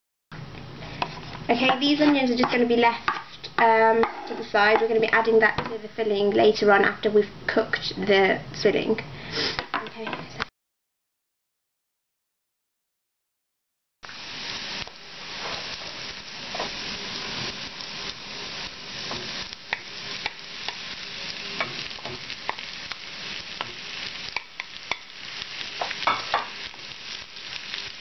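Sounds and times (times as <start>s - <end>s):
onions sizzling in pan: 0.9s - 6.8s, 14.0s - 28.0s.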